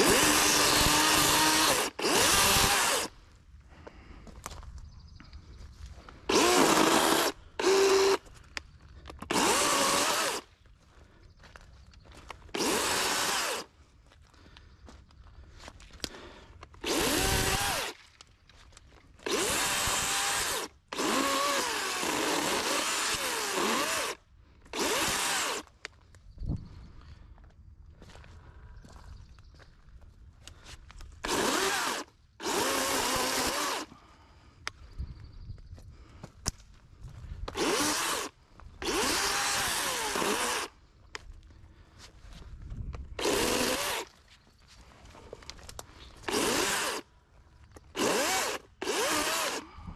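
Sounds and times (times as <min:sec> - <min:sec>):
electric chainsaw cutting branches: 0:00.0 - 0:03.1, 0:06.3 - 0:08.2, 0:09.2 - 0:10.5, 0:12.6 - 0:13.7, 0:16.8 - 0:18.0, 0:19.2 - 0:25.7, 0:31.2 - 0:33.9, 0:37.5 - 0:40.7, 0:43.2 - 0:44.1, 0:46.2 - 0:47.1, 0:47.9 - 0:49.7.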